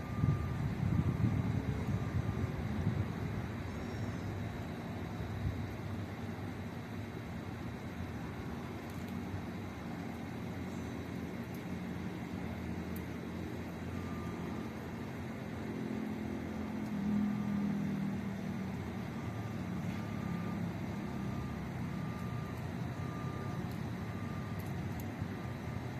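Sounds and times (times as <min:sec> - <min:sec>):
reversing alarm beeping: 0:00.0 - 0:25.9
vehicle engine rumbling: 0:00.0 - 0:25.9.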